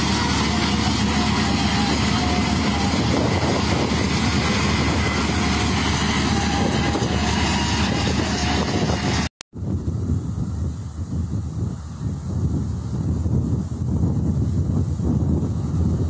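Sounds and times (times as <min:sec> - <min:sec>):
combine harvester running: 0:00.0 - 0:09.3.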